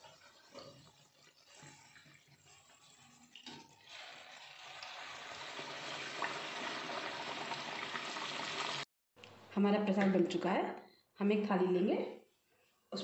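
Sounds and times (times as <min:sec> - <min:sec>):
deep-frying in hot oil sizzle: 0:00.0 - 0:08.9.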